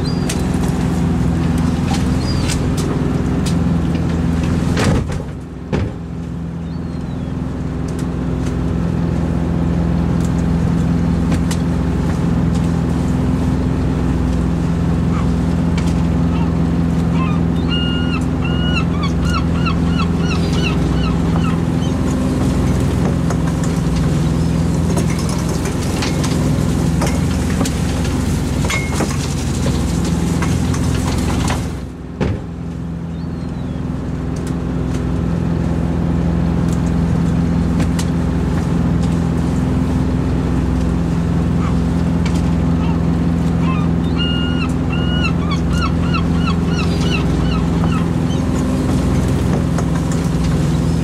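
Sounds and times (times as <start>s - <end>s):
boat engine running: 0.0s - 51.0s
gull calls: 16.2s - 22.1s, 41.5s - 41.9s, 42.6s - 48.6s.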